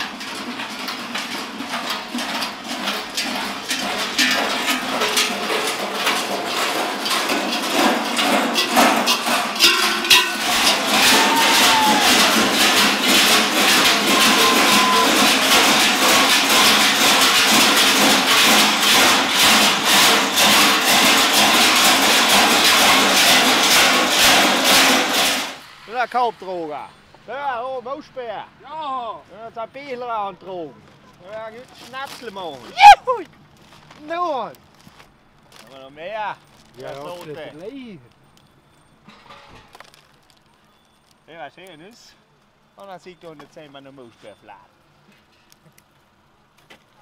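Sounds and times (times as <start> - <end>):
costume bells clanging: 9.1 - 12.9, 13.7 - 15.8.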